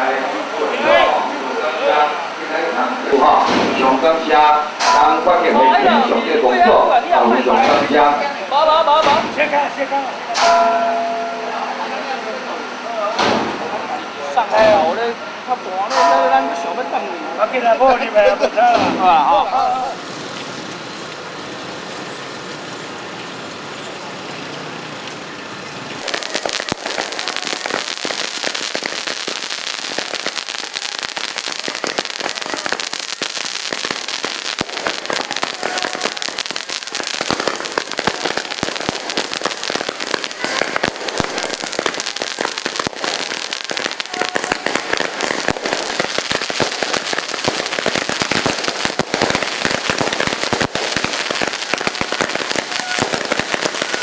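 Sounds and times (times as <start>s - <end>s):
firecrackers cracking: 0.0s - 11.6s, 13.1s - 15.2s, 15.8s - 16.8s, 17.9s - 54.0s
steady noise: 25.8s - 54.0s.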